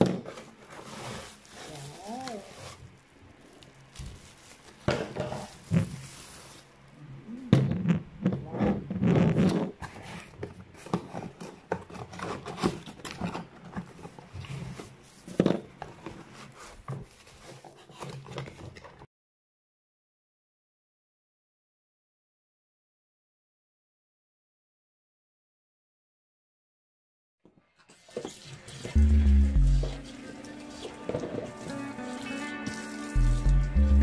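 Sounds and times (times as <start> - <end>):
bubble wrap crinkling: 0.3 - 7.0, 29.8 - 34.0.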